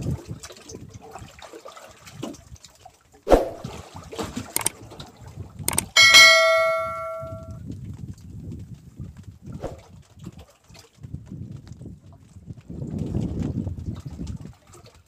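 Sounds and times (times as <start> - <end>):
sharp clicks: 5.7 - 7.5
bell ding: 5.7 - 7.6.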